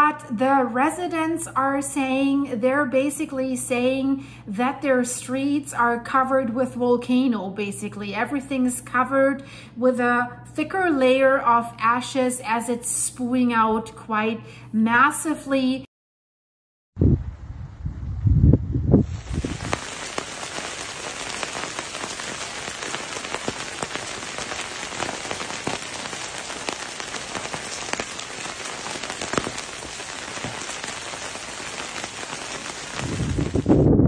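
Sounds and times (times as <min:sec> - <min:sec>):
volcanic ash falling on rooftops: 0:19.0 - 0:33.8.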